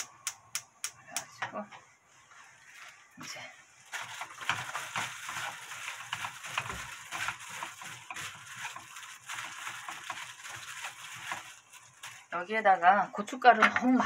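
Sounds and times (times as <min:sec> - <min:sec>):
plastic glove and pork skin crackling: 0:02.1 - 0:12.9.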